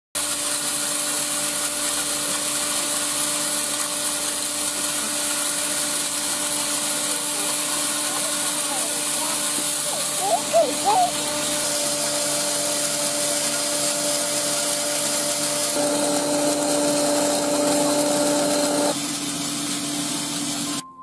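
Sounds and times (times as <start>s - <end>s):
electric grain mill grinding: 0.2s - 20.9s
small child's voice: 7.1s - 11.2s.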